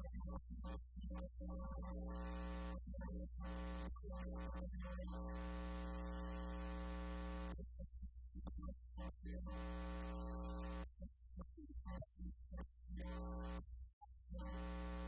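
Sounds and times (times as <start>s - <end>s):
low mains hum: 14.4s - 15.0s.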